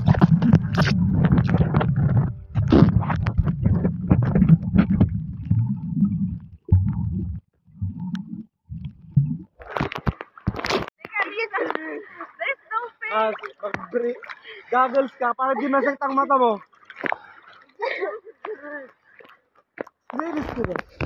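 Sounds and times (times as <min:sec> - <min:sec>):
bubbles popping: 0:00.0 - 0:10.1
underwater water sloshing: 0:00.0 - 0:21.0.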